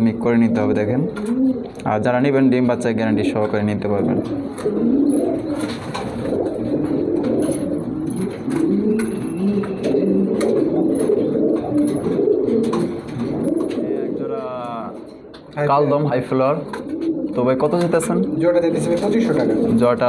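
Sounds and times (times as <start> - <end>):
pigeons cooing: 0.0 - 1.8, 3.8 - 20.0.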